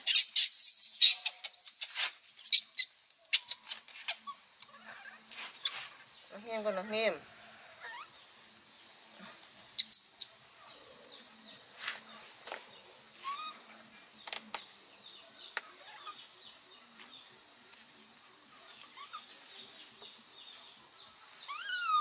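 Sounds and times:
baby monkey squeaking: 0:00.0 - 0:05.2, 0:09.8 - 0:10.3, 0:13.2 - 0:13.6, 0:19.0 - 0:19.3, 0:21.5 - 0:22.0.

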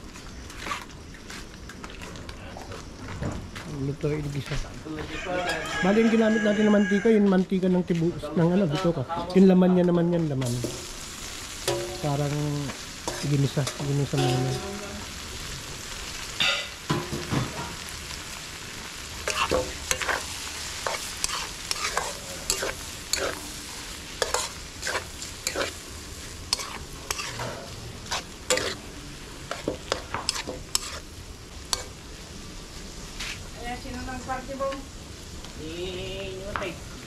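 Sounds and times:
meat sizzling in a wok: 0:02.8 - 0:37.0
metal spatula scraping a pan: 0:13.0 - 0:14.8, 0:19.2 - 0:25.8, 0:26.4 - 0:28.8, 0:29.5 - 0:31.1.

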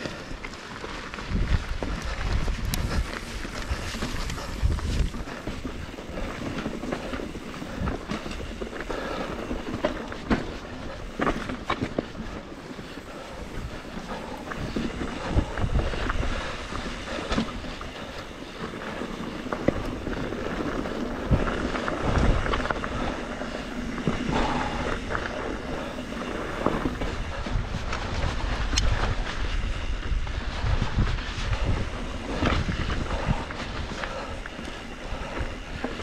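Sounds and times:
bike tyres rumbling over rocks: 0:00.0 - 0:36.0
wind buffeting microphone: 0:00.0 - 0:36.0
bike knocks and rattles: 0:01.0 - 0:36.0.

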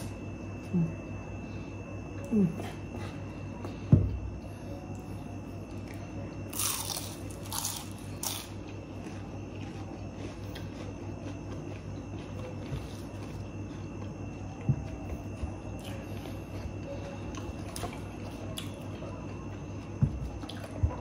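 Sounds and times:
steady low hum: 0:00.0 - 0:21.0
chewing crispy food: 0:04.8 - 0:21.0.

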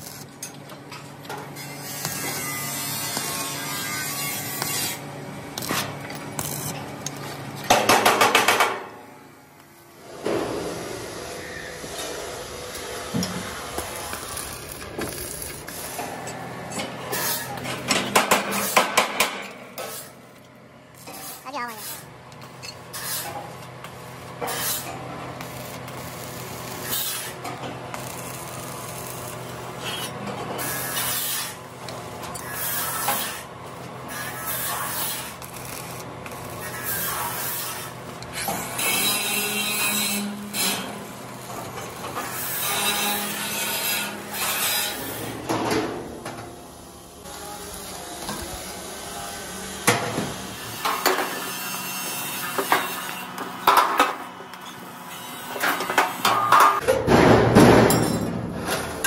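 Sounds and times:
welding arc crackling hiss: 0:10.4 - 0:16.2, 0:20.9 - 0:39.9, 0:46.6 - 0:51.4.

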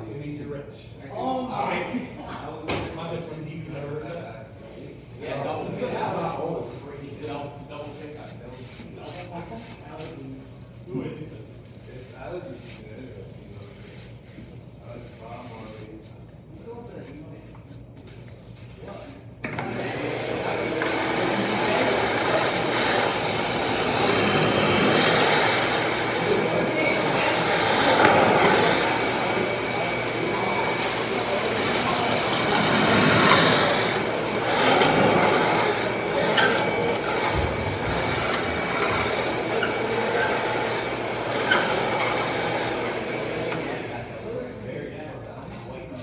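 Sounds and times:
shop machine whirring: 0:19.4 - 0:44.4.

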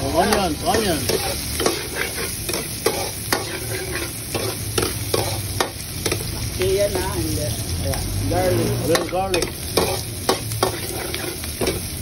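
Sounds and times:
food sizzling in hot oil: 0:00.0 - 0:12.0
metal ladle scraping a wok: 0:00.3 - 0:06.3, 0:08.9 - 0:12.0.

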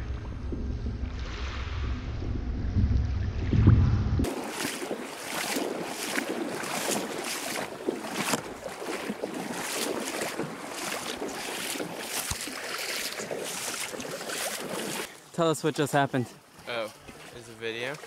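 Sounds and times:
kayak paddles splashing water: 0:04.2 - 0:18.0.

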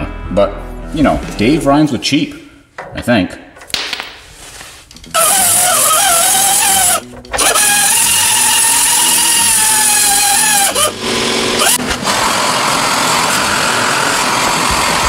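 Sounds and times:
die grinder grinding steel: 0:05.1 - 0:15.0.

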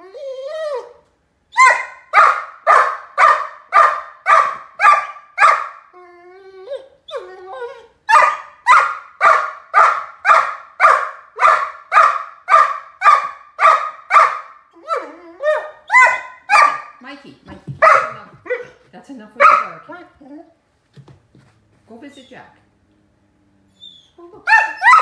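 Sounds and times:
puppy whining: 0:00.0 - 0:02.0, 0:04.9 - 0:08.8, 0:14.7 - 0:16.9, 0:19.6 - 0:20.6, 0:23.7 - 0:25.0
puppy barking: 0:01.6 - 0:05.9, 0:08.1 - 0:17.0, 0:17.6 - 0:18.8, 0:19.4 - 0:20.0, 0:24.4 - 0:25.0.

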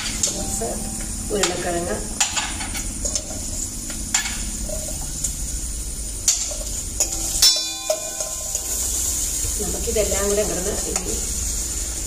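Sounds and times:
onions sizzling in oil: 0:00.0 - 0:12.0
metal spoon clinking and scraping: 0:02.2 - 0:03.5, 0:06.2 - 0:09.1.

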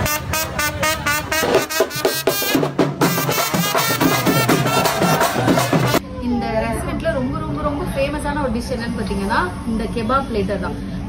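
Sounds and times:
upbeat music with quick beat: 0:01.4 - 0:06.0.

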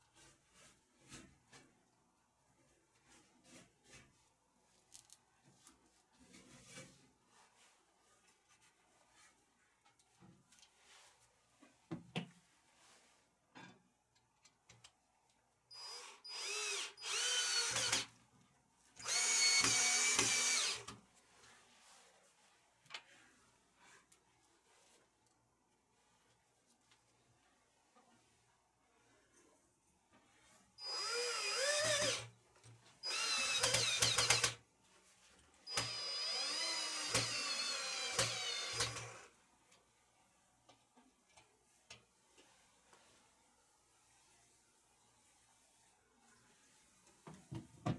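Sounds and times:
cordless drill motor running: 0:15.8 - 0:18.1, 0:19.0 - 0:20.9, 0:30.8 - 0:32.3, 0:33.0 - 0:34.6, 0:35.7 - 0:39.2.

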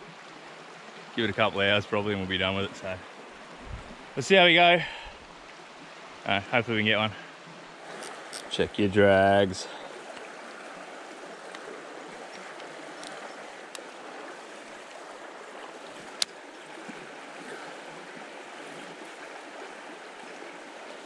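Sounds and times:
creek water running: 0:00.0 - 0:21.0
faint ticks: 0:11.4 - 0:11.7, 0:12.3 - 0:13.9.

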